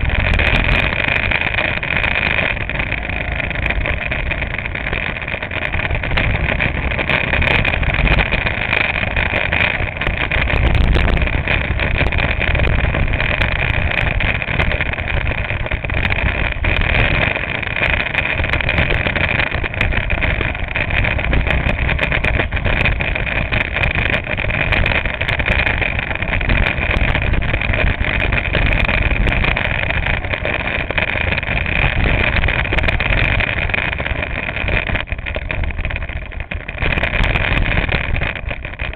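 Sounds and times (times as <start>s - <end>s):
go-kart engine drone: 0.0s - 38.9s.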